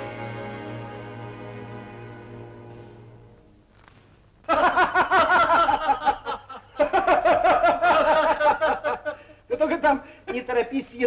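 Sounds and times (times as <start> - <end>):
soft background music: 0.0 - 3.7
men laughing heartily: 4.4 - 9.4.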